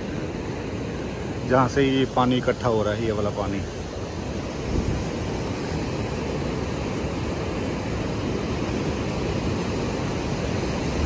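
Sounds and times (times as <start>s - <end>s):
breaking surf: 0.0s - 11.0s
wind buffeting microphone: 4.4s - 11.0s.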